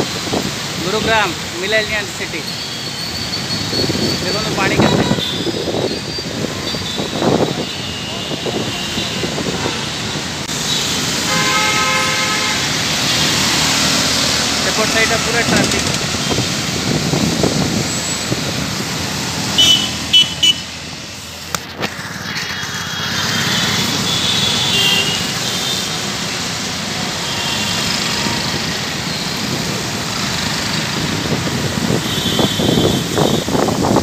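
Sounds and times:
traffic on wet road: 0.0s - 34.0s
car horn toots: 11.3s - 12.6s, 19.6s - 20.7s.

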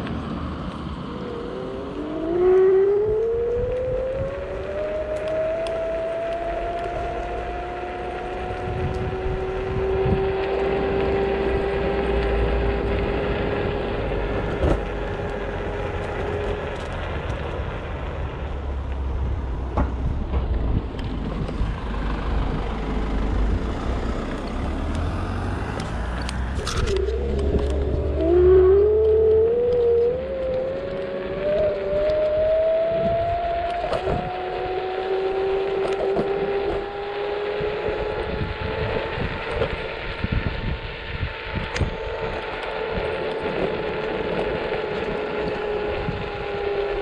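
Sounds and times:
motor scooter engine accelerating: 0.0s - 47.0s
steady low rumble: 0.0s - 47.0s.

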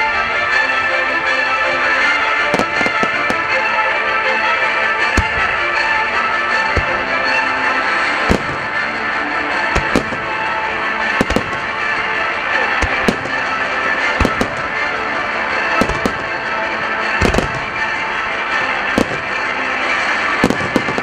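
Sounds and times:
music: 0.0s - 21.0s
firework shells bursting: 2.5s - 3.8s, 5.1s - 18.1s, 18.8s - 21.0s.

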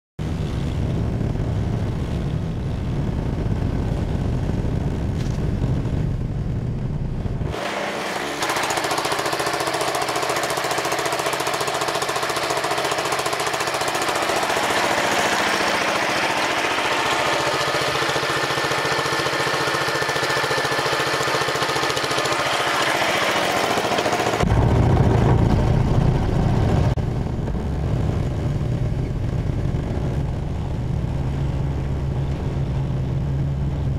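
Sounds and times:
garden tractor engine running: 7.4s - 30.4s.

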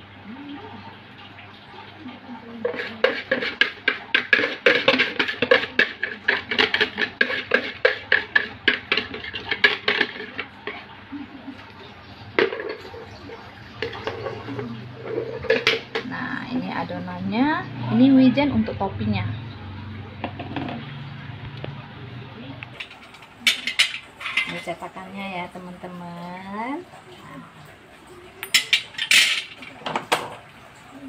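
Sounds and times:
whisk scraping metal sieve: 2.6s - 10.5s.

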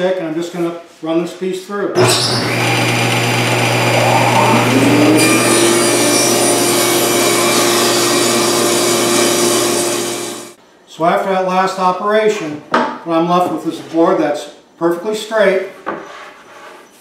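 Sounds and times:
table saw cutting wood: 2.0s - 10.6s.

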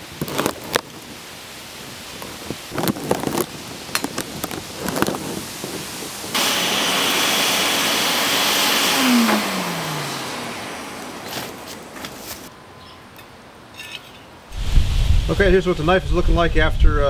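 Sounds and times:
air blower hissing and whining: 5.2s - 11.9s
motor winding down: 6.4s - 11.2s.

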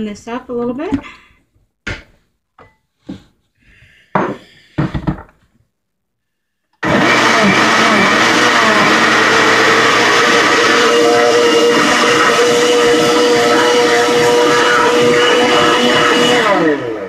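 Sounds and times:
blender motor running: 6.8s - 17.0s.

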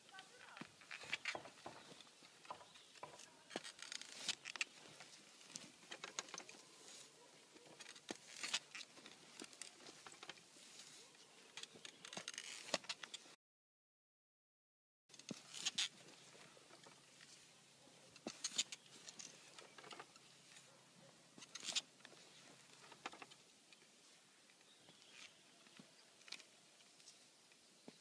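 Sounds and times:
earth pattering through tines: 0.0s - 13.2s
digging fork working soil: 0.0s - 13.4s, 15.1s - 24.0s
tines scraping and clicking: 0.0s - 13.4s, 15.1s - 17.4s, 18.1s - 20.8s, 21.4s - 27.7s.

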